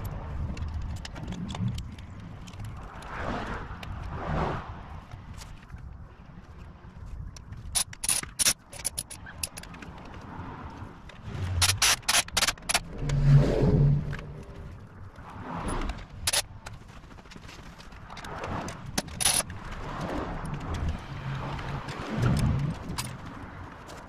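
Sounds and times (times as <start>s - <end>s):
hand tools clicking and clinking: 7.4s - 10.2s, 11.4s - 12.9s, 15.7s - 19.8s.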